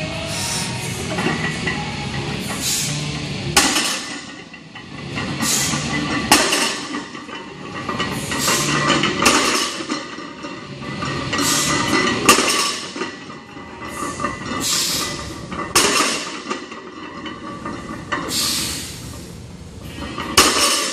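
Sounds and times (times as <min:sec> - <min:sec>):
barbell plates clanking on floor: 0:03.6 - 0:18.5, 0:19.9 - 0:20.9.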